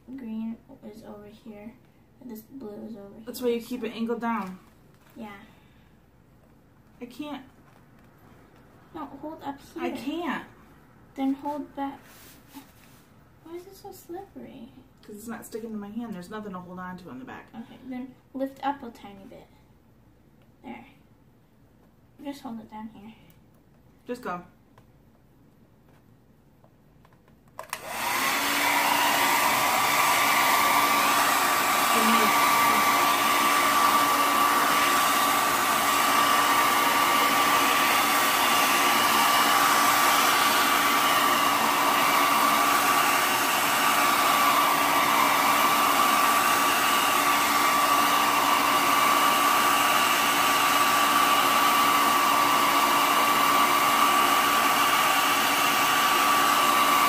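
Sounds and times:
hair dryer running: 0:27.6 - 0:57.0.

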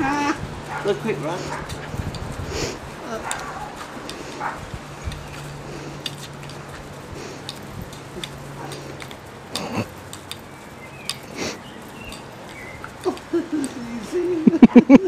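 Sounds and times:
plastic broom clicks and scuffs: 0:05.1 - 0:11.5.

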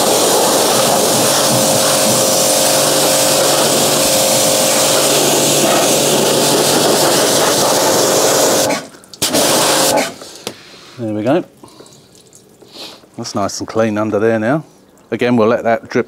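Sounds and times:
pump humming: 0:00.0 - 0:10.2
pressure washer water jet hissing: 0:00.0 - 0:10.4.

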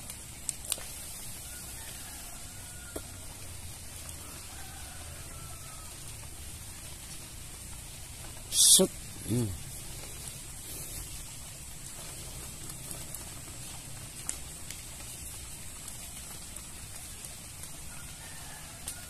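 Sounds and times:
faint ticks: 0:00.0 - 0:01.0, 0:09.3 - 0:19.0
high hiss: 0:00.0 - 0:19.0.

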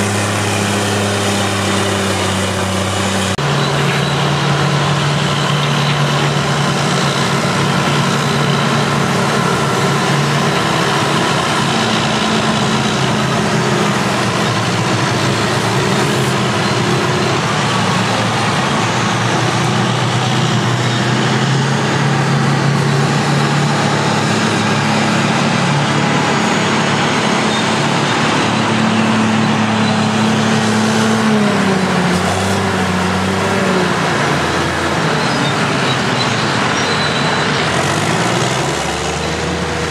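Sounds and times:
heavy diesel engines working: 0:00.0 - 0:39.9.

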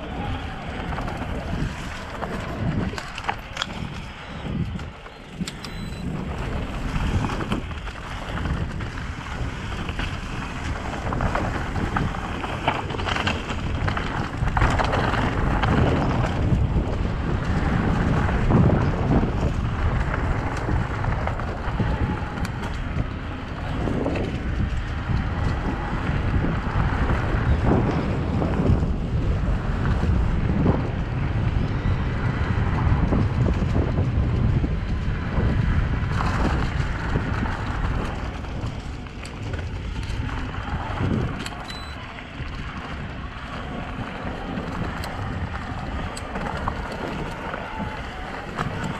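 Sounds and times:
tyres rumbling on dirt: 0:00.0 - 0:48.9
wind noise on microphone: 0:00.0 - 0:48.9.

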